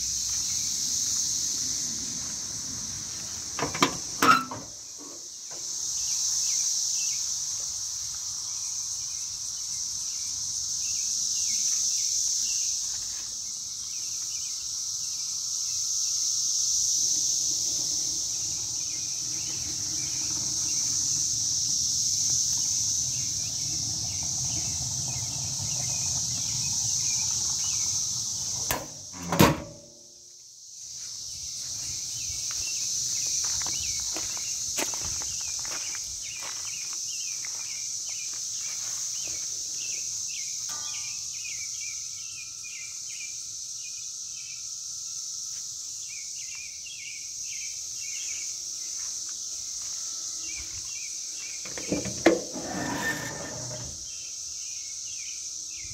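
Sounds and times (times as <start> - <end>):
insect buzzing: 0.0 - 29.8
car engine lid slamming: 3.6 - 4.7, 28.6 - 29.9.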